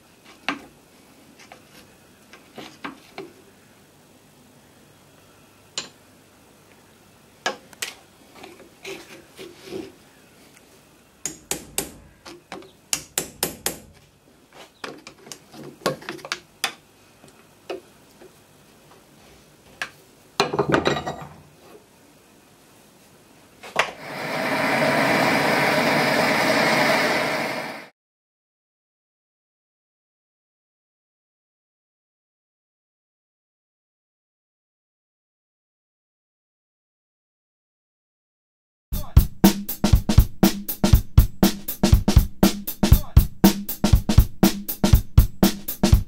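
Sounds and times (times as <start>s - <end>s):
blowtorch burning: 24.0s - 27.9s.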